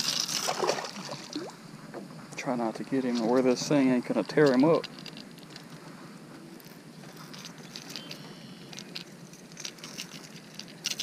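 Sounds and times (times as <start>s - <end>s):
low background hiss: 0.0s - 10.9s
small clicks of fishing hooks: 6.6s - 11.0s.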